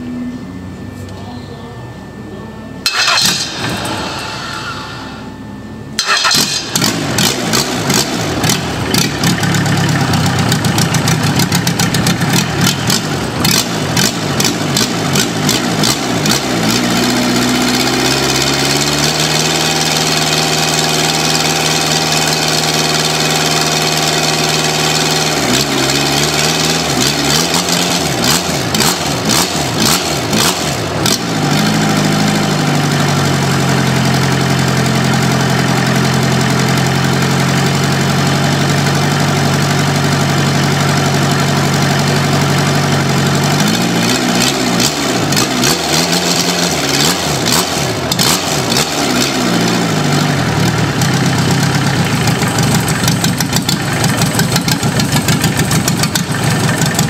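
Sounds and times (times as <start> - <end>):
diesel engine clattering: 2.8 - 5.0, 5.9 - 57.0
diesel engine starter cranking: 2.8 - 5.3, 6.0 - 38.8.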